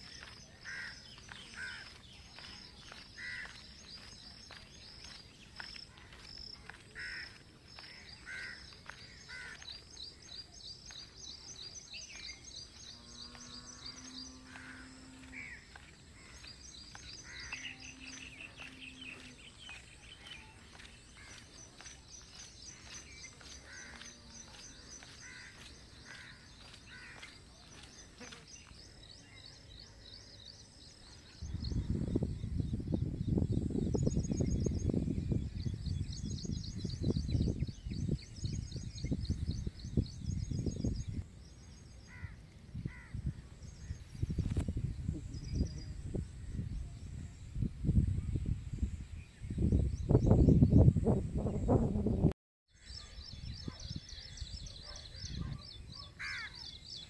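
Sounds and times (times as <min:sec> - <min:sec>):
birds chirping and trilling: 0:00.0 - 0:52.0, 0:52.8 - 0:57.0.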